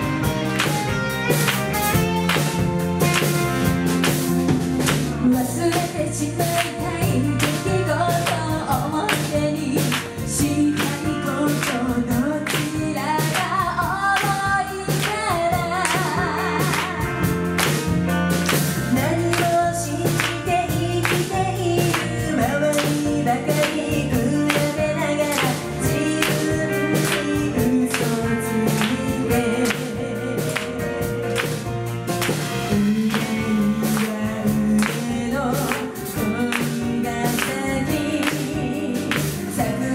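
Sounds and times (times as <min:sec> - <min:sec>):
drum kit: 0:00.0 - 0:39.9
electric bass: 0:00.0 - 0:39.9
electric guitar: 0:00.0 - 0:39.9
female voices singing: 0:18.9 - 0:31.5, 0:32.7 - 0:39.9.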